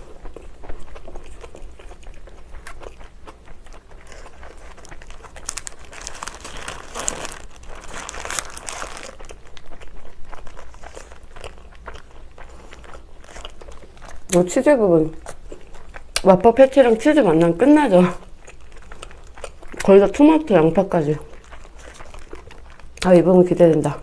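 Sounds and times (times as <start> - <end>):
chewing: 0.0 - 16.3, 18.0 - 24.0
paper wrapper crinkling: 4.0 - 9.6.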